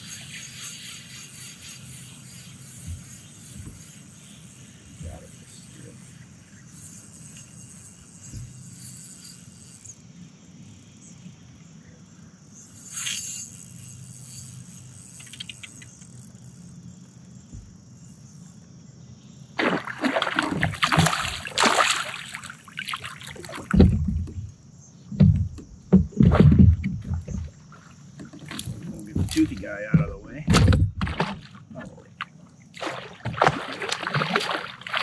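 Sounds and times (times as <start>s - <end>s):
fish thrashing in water: 19.6s - 24.3s, 25.9s - 35.0s.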